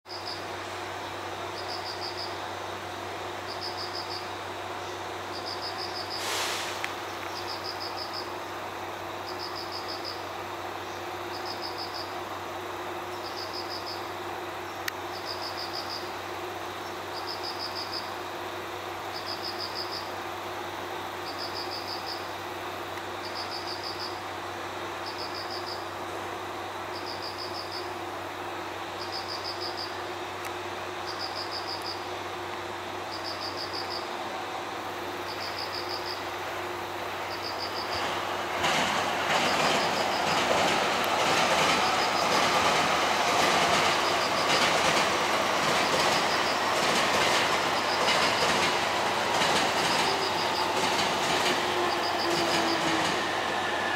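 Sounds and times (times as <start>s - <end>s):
cricket chirping trills: 0.1s - 6.2s, 6.9s - 28.1s, 28.9s - 34.2s, 34.8s - 53.9s.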